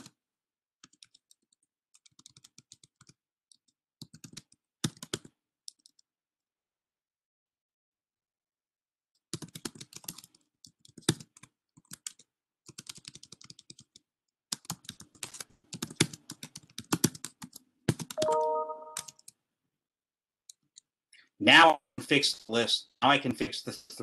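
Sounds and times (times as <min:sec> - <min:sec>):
typing on computer keyboard: 0:00.8 - 0:06.1, 0:09.2 - 0:19.4
brief steady multi-pitch tone: 0:18.2 - 0:19.1.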